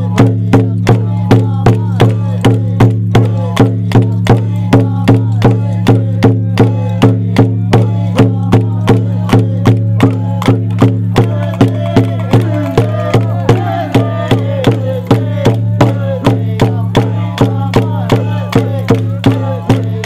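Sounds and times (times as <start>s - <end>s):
steady percussion beat: 0.0s - 20.0s
voices singing: 0.0s - 20.0s.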